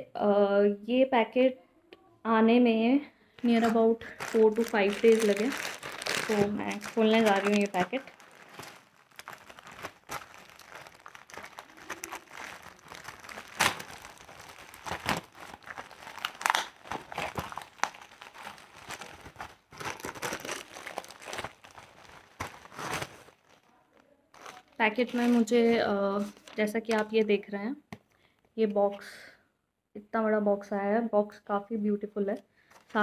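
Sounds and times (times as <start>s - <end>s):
plastic wrapper crinkling: 3.4s - 27.3s, 32.7s - 33.0s.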